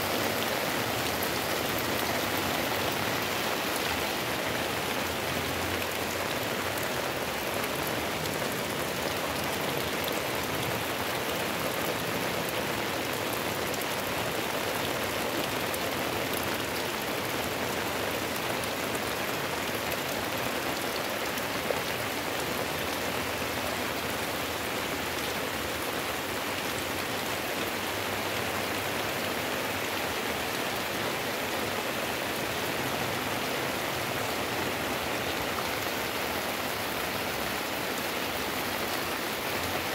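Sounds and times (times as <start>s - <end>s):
heavy rain pouring: 0.0s - 39.9s.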